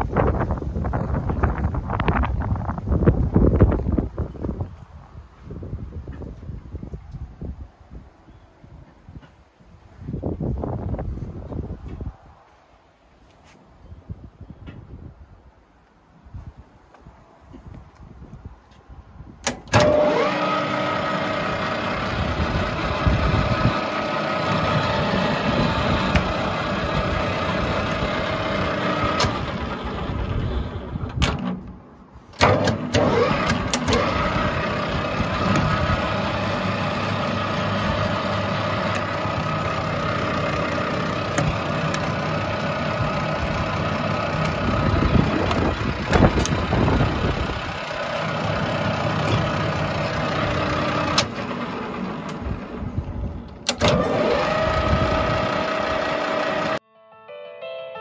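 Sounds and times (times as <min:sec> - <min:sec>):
lathe running with whine: 0:19.8 - 0:30.9, 0:53.8 - 0:56.8
machine clunks: 0:32.4 - 0:34.4.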